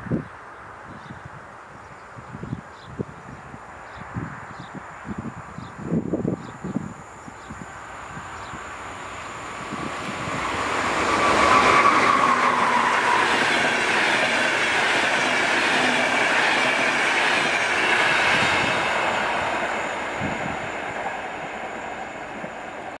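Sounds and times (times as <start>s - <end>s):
electric locomotive whine: 2.3s - 23.0s
train coaches rushing past: 7.8s - 23.0s.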